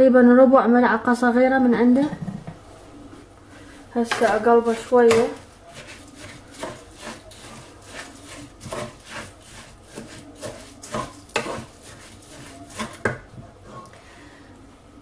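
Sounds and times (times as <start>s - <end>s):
spatula scraping rice in pot: 3.6s - 14.0s.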